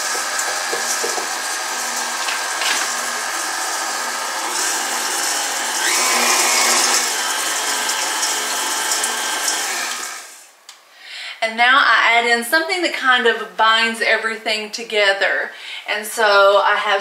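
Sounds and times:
beater stirring dry oats and nuts: 0:00.0 - 0:03.3
stand mixer running: 0:00.0 - 0:10.4.

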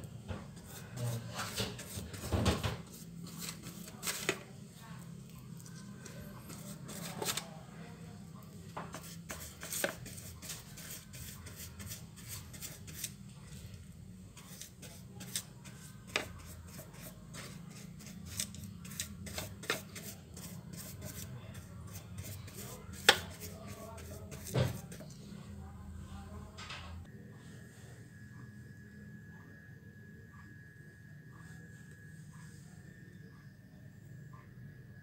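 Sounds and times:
steady low hum: 0:00.0 - 0:35.0
pastry brush clicking and tapping: 0:22.9 - 0:24.6.

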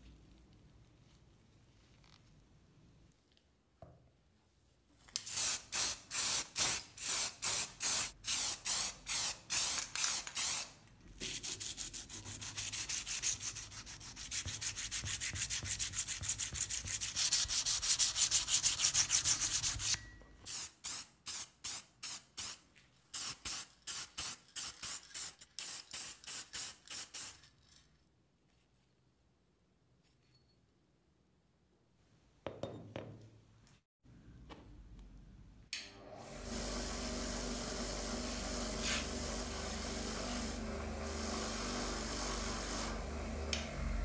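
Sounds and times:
sanding pad scraping steel: 0:38.6 - 0:43.0.

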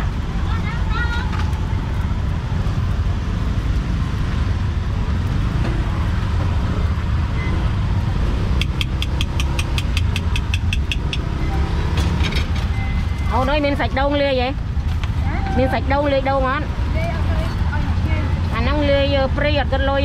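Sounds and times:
sharp metallic ticks: 0:08.5 - 0:11.6.

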